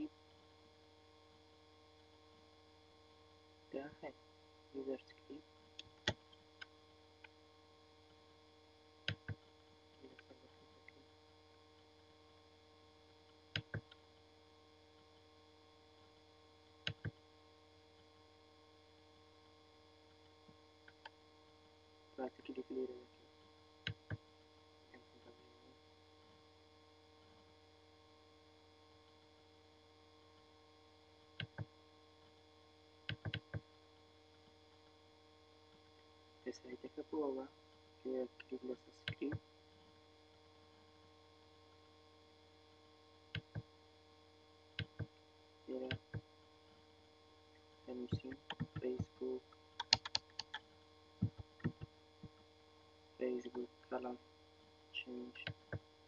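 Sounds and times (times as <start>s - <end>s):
steady electrical hum: 0.0s - 56.0s
computer mouse clicks: 13.5s - 14.0s, 31.4s - 31.7s, 33.1s - 33.6s, 44.8s - 45.1s, 48.2s - 49.0s, 49.8s - 50.6s.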